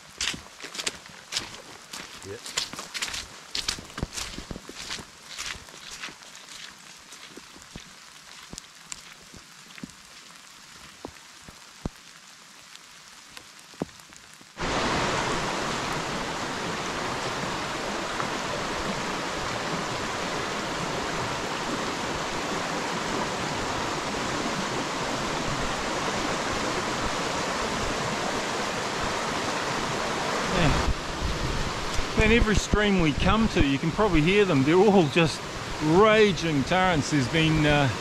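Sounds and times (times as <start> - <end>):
stream rushing: 0.0 - 11.6, 14.6 - 38.0
light rain hiss: 0.0 - 38.0
water drips ticking: 0.2 - 12.1.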